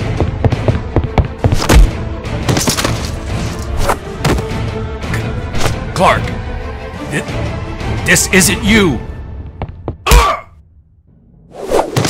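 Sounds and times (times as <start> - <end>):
dramatic background music: 0.0 - 11.5
fight hits and thuds: 1.5 - 3.2.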